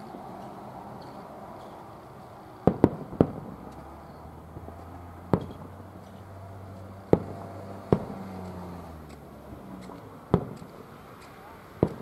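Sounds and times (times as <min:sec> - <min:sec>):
firework shells bursting: 0:02.6 - 0:05.8, 0:07.1 - 0:08.6, 0:09.8 - 0:12.0.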